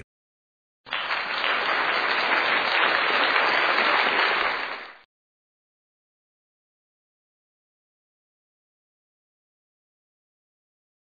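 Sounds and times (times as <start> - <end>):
crowd clapping: 0.9 - 5.1.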